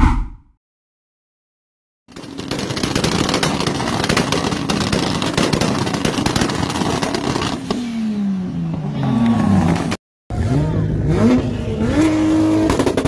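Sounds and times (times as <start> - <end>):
car exhaust popping and banging: 2.1 - 7.8.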